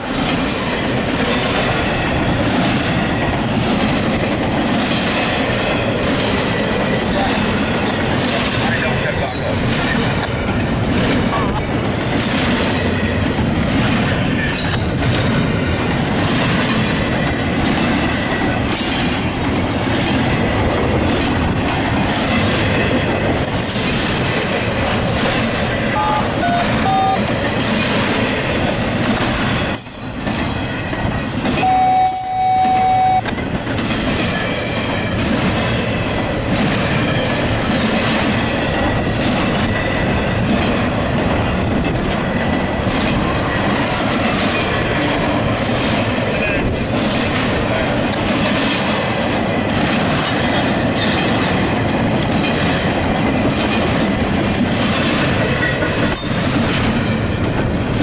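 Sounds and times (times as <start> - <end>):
freight train rumbling past: 0.0 - 58.0
steel wheel squeals: 29.8 - 30.2, 31.3 - 33.2.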